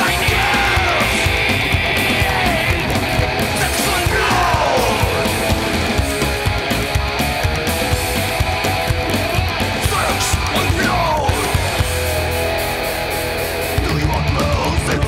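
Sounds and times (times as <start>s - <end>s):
person singing: 0.0s - 6.0s, 9.8s - 11.7s, 13.8s - 15.0s
loud rock music: 0.0s - 15.0s.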